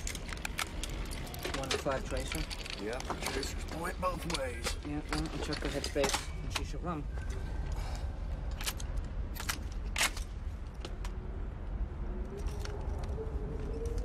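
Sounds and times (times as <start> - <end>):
metallic clicks of guns handled: 0.0 - 6.7, 8.4 - 11.2.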